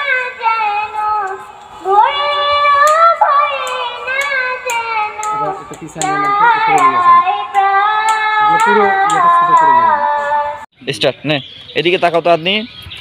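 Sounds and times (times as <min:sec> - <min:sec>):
child singing: 0:00.0 - 0:10.6
sharp clap-like beat: 0:03.6 - 0:09.9.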